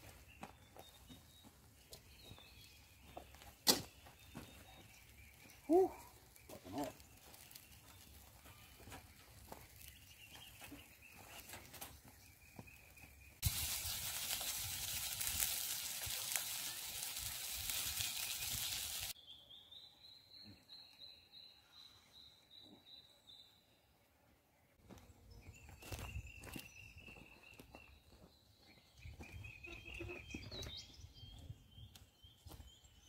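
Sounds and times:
food sizzling in a frying pan: 13.4 - 19.2.

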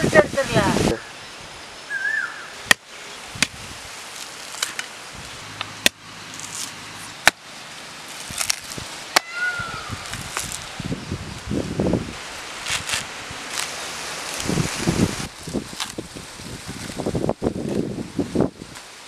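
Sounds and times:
blade chopping coconut husk: 5.7 - 7.5, 8.1 - 9.5.

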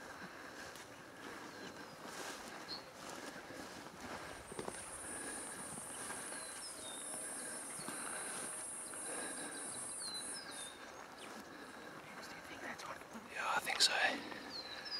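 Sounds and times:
bird chirps: 5.9 - 11.4.

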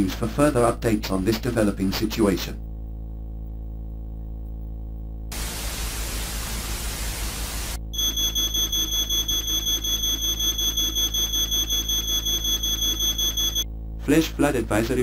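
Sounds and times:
static hiss: 5.3 - 7.9.

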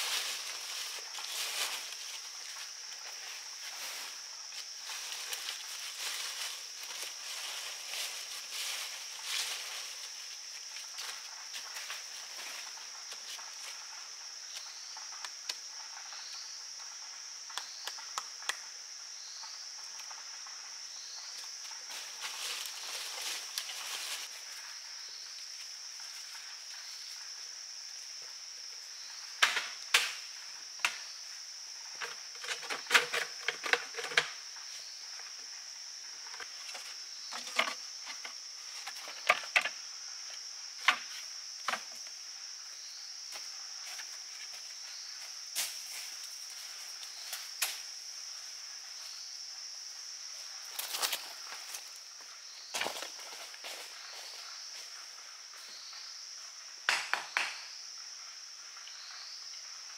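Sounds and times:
forest insects droning: 0.0 - 59.9
bamboo pole and stones knocking: 56.9 - 57.6.

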